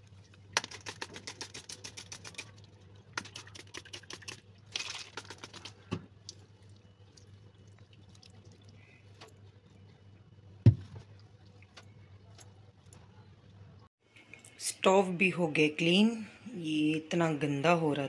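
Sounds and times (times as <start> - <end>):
loud thump against sink: 10.6 - 11.0.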